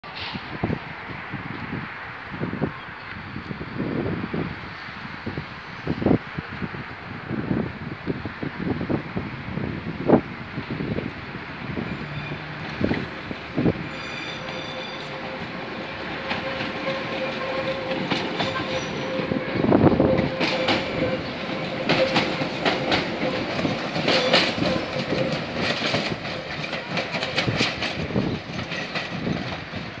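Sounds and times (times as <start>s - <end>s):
train passing close by: 0.0s - 30.0s
train whine: 3.4s - 30.0s
wheels clicking over rail joints: 15.2s - 30.0s.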